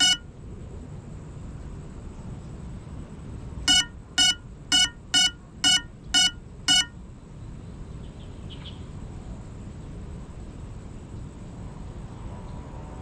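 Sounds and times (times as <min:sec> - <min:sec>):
high electronic beeps: 0:00.0 - 0:00.2, 0:03.7 - 0:06.9
steady low hiss: 0:00.0 - 0:13.0.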